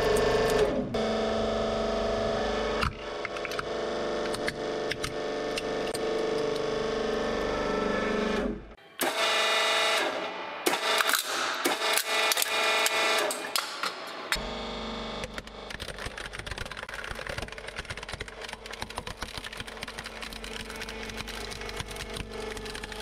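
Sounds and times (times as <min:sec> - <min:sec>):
plastic cracking and crunching: 0:15.8 - 0:23.0.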